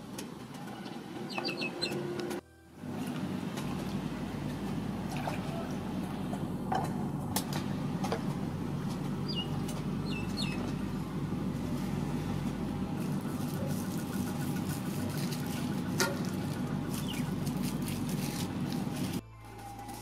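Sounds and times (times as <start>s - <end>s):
outdoor background noise: 0.0s - 20.0s
bird chirping: 0.8s - 2.0s, 9.2s - 10.8s, 16.9s - 17.4s.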